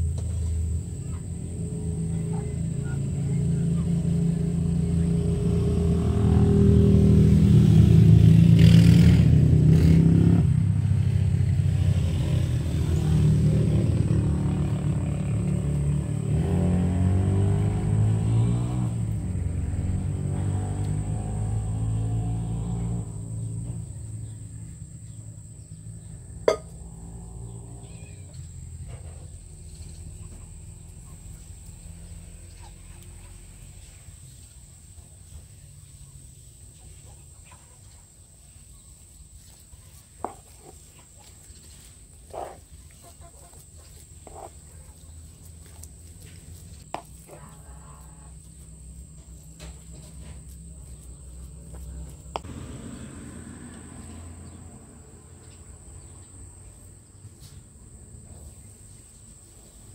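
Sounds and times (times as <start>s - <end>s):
metal spoon knocking on wooden board: 26.5s - 26.7s.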